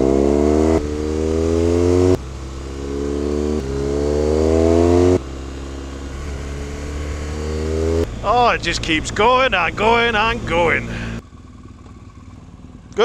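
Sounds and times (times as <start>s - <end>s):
motorcycle engine revving: 0.0s - 13.0s.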